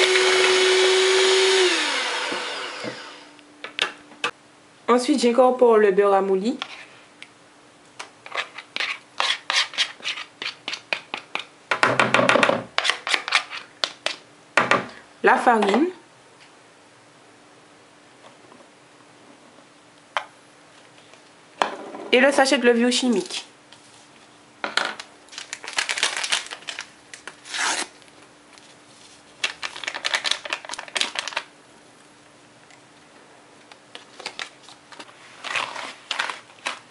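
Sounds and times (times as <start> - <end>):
spatula scraping plastic bowl: 8.3 - 11.2
paper sachet tearing and crinkling: 25.3 - 28.0, 29.0 - 31.5, 34.0 - 36.9.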